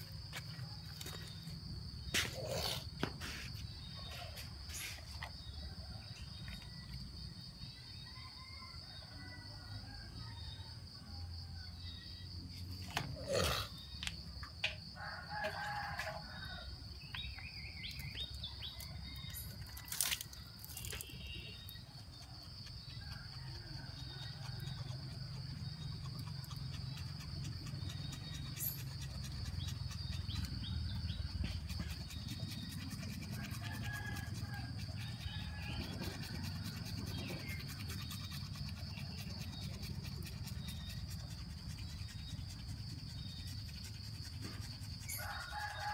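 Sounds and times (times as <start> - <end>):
crickets droning: 0.0 - 45.9
rooster crowing: 15.0 - 16.8, 33.4 - 36.6, 45.2 - 45.9.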